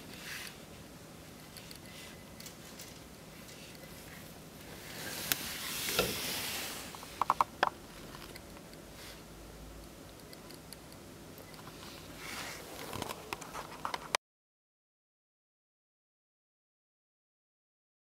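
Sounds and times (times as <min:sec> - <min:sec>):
soft rustling and scraping: 0:00.0 - 0:07.2, 0:11.6 - 0:14.2.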